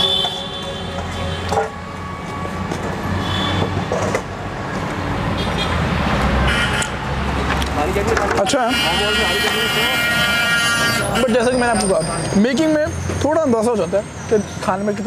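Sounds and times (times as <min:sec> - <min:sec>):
car horn toot: 0:00.0 - 0:01.6, 0:03.2 - 0:03.8, 0:06.5 - 0:07.0, 0:08.6 - 0:11.7
vehicle engines rumbling: 0:00.0 - 0:15.0.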